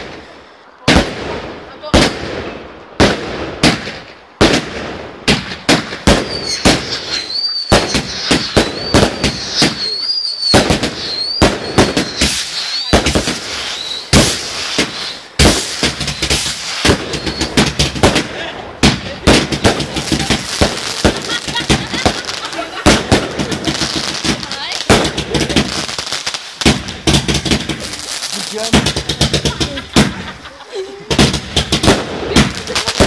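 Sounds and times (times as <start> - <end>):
fireworks bangs and crackles: 0.0 - 33.0
high wavering whistle: 6.2 - 12.9, 13.6 - 14.1.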